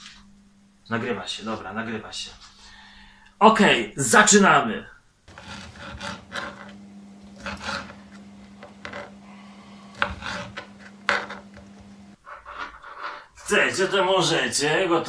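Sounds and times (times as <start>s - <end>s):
knife chopping on plastic board: 5.3s - 12.2s
low steady hum: 5.3s - 12.2s.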